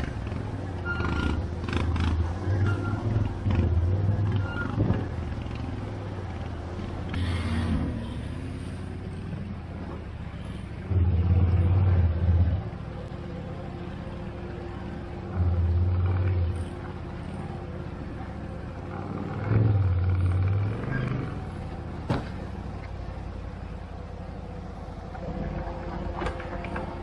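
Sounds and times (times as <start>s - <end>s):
atv engine revving: 0.0s - 10.1s, 15.2s - 22.2s.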